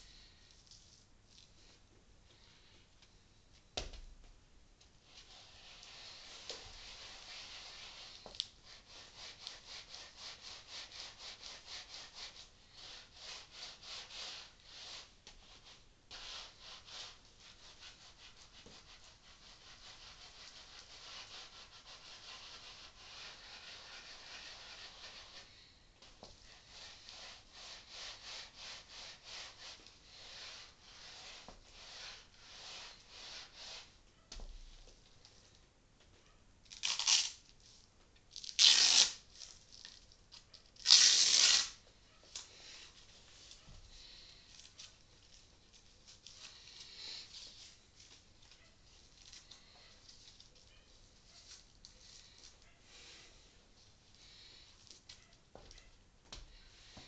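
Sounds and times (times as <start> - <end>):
ball rubbing against towel: 5.0 - 34.7.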